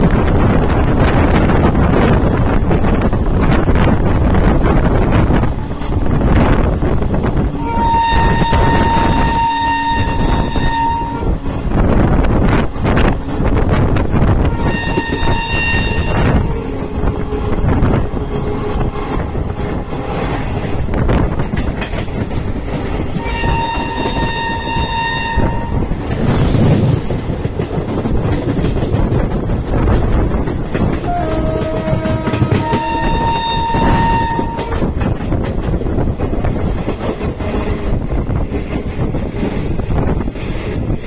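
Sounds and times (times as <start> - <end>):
rushing noise: 0.0 - 41.0
train rumble and clatter: 0.0 - 41.0
train horn blasts: 7.5 - 11.6, 12.5 - 20.4, 23.2 - 26.0, 31.0 - 34.9.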